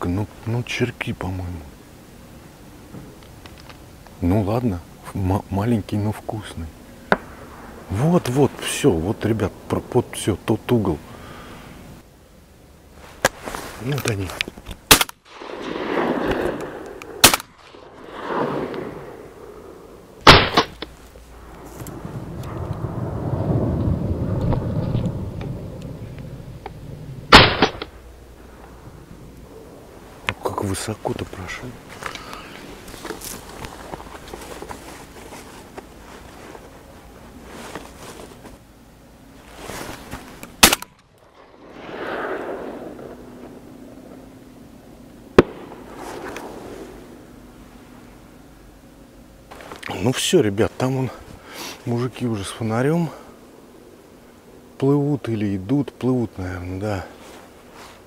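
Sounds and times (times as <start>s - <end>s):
shotgun shots echoing: 14.9s - 19.4s, 20.2s - 20.8s, 27.3s - 28.0s, 40.6s - 43.5s, 45.3s - 46.6s.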